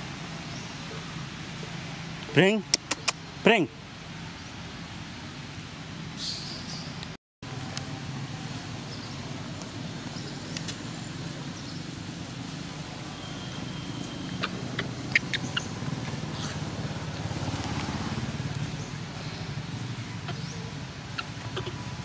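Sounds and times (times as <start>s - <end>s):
low outdoor rumble: 7.0s - 22.0s.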